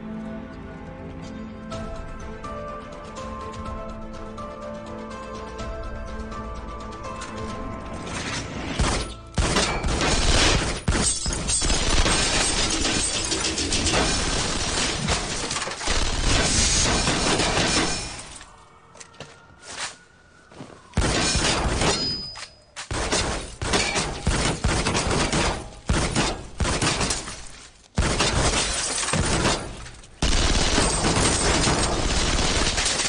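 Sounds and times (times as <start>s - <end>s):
rapid gunfire: 8.8s - 17.9s, 22.9s - 27.3s, 28.0s - 33.0s
glass breaking: 8.8s - 18.4s, 23.1s - 33.0s.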